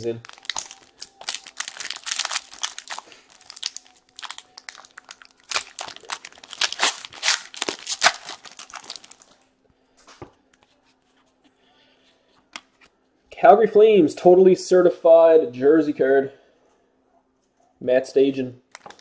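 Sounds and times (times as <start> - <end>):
wrapper crackling and tearing: 0.0 - 9.4, 18.7 - 19.0.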